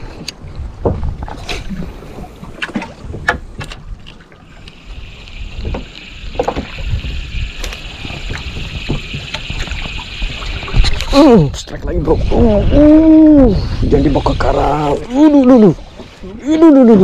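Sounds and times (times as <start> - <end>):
wind buffeting microphone: 5.0 - 17.0.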